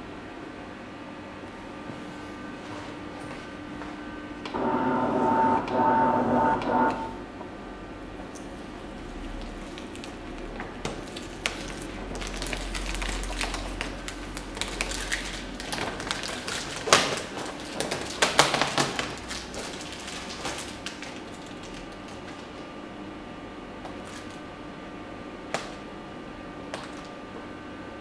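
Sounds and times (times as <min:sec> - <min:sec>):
vinyl film crackling and clicking: 0:09.2 - 0:22.7, 0:25.5 - 0:25.9, 0:26.7 - 0:27.2.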